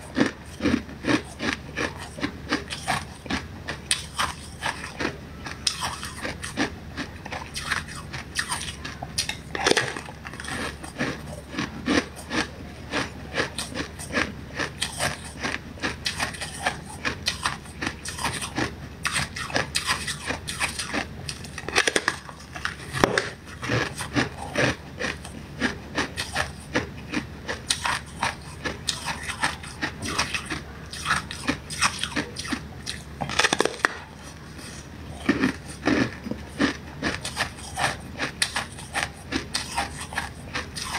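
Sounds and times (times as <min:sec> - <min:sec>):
ice crunching and cracking: 0:09.2 - 0:15.5, 0:16.1 - 0:26.8, 0:27.7 - 0:34.0.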